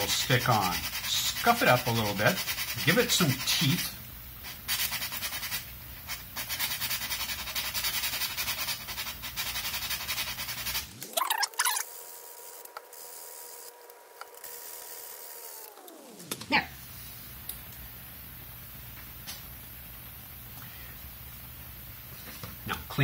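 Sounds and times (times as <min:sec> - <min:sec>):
sandpaper rubbing on plastic: 0:00.0 - 0:15.2.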